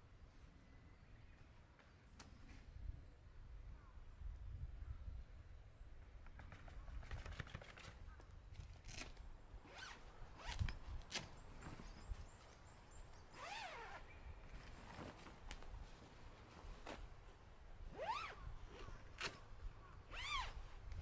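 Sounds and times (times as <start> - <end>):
canvas tent rustling and scraping: 8.8 - 21.0.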